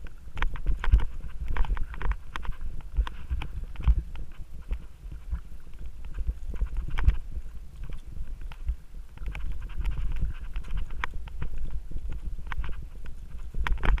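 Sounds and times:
bike rattling clicks and knocks: 0.0 - 14.0
bike tyres rumbling on dirt: 0.0 - 14.0.

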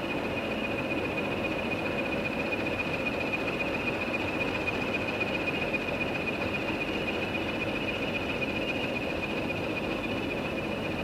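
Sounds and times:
constant high whine: 0.0 - 11.0.

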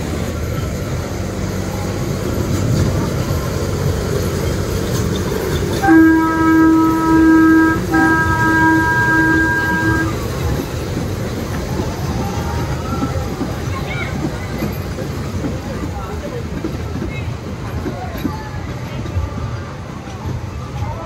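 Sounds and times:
toy train rumbling: 0.0 - 21.0
train horn blasts: 5.8 - 10.4.

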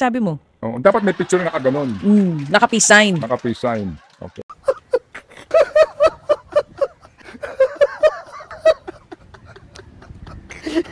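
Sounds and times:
rhythmic laughter: 3.2 - 10.9.

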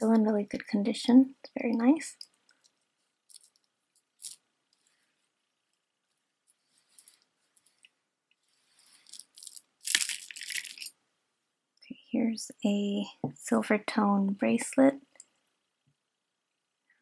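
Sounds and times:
necklace clicking and clinking: 1.8 - 4.4, 8.8 - 11.0.

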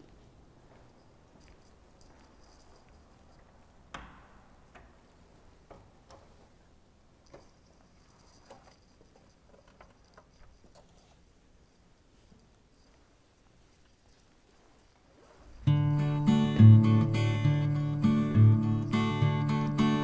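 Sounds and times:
faint irregular taps and clicks: 1.4 - 6.5.

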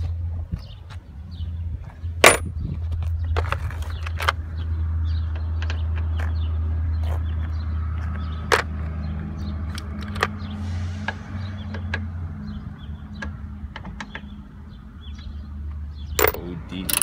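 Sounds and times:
metal sockets clinking in plastic case: 16.2 - 17.0.

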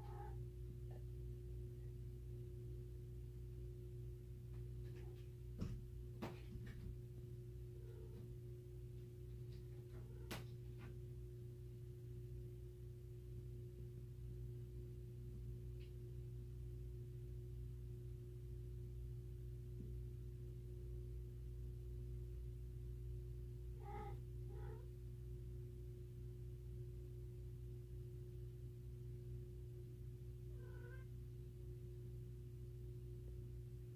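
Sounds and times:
low hum: 0.0 - 33.9.

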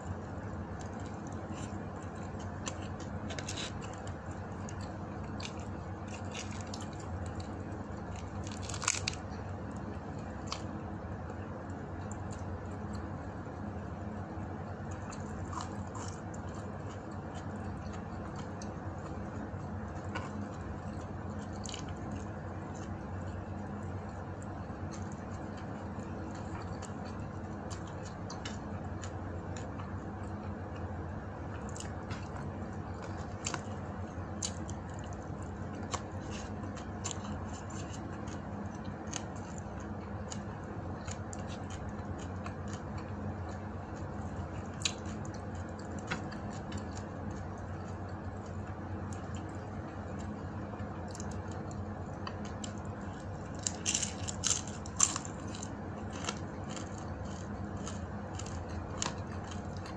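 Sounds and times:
person chewing: 14.9 - 23.4, 31.5 - 59.9.

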